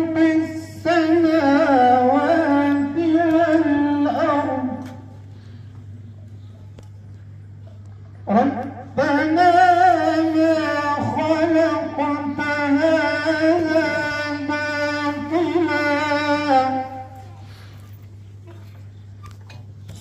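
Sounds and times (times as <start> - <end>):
man reciting melodically: 0.0 - 5.3, 8.2 - 17.5
low steady hum: 0.0 - 20.0.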